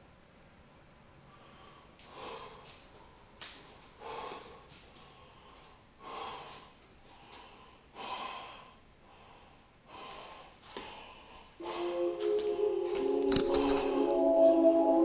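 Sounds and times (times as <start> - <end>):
man breathing deeply: 1.3 - 2.8, 3.9 - 12.0.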